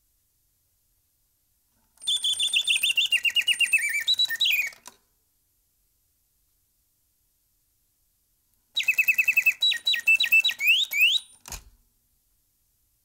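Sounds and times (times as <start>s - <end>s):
mechanical birdsong chirping: 2.0s - 4.9s, 8.8s - 11.5s.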